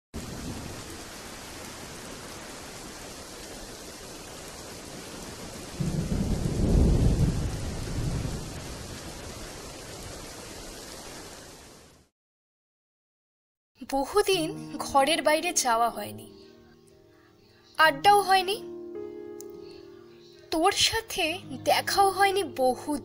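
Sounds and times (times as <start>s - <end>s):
low roll of thunder: 0.2s - 1.8s, 4.9s - 10.8s
steady rain: 0.2s - 12.1s.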